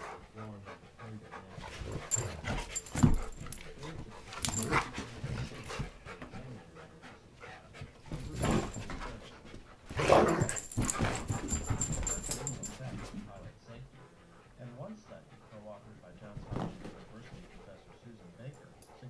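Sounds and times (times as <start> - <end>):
dogs panting: 0.0 - 19.0
dogs scuffling: 1.3 - 6.6, 7.8 - 13.7, 16.1 - 18.8.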